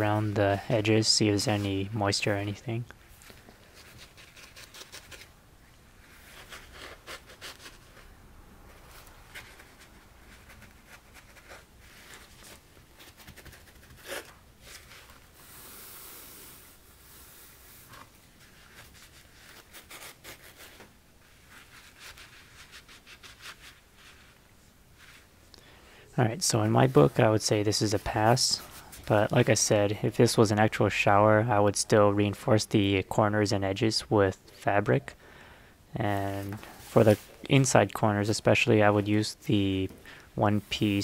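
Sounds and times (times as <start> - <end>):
paper towel wiping: 6.0 - 24.4, 25.0 - 25.3, 26.5 - 29.7, 36.1 - 38.1.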